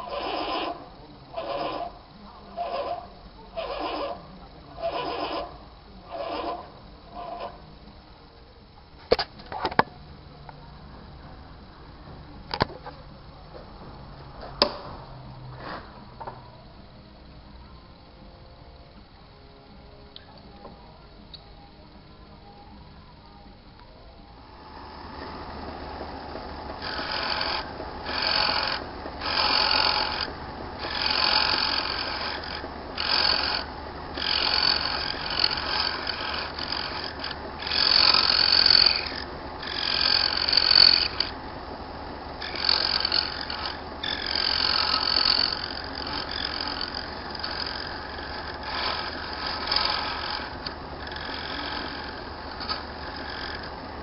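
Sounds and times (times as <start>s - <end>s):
tool scraping bone on lathe: 0.0s - 4.2s, 4.8s - 7.6s, 25.2s - 54.0s
lathe motor humming: 0.0s - 8.8s, 24.3s - 54.0s.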